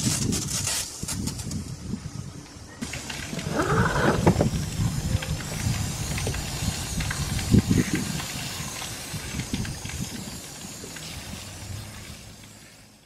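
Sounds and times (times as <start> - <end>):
low bumps: 2.8 - 12.6
hose nozzle spraying water: 2.8 - 13.0.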